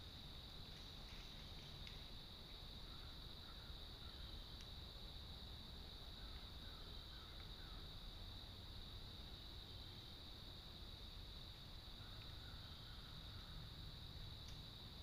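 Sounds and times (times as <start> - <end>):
cricket chorus: 0.0 - 15.0
low woodland rumble: 0.0 - 15.0
faint click: 4.6 - 4.8, 14.4 - 14.6.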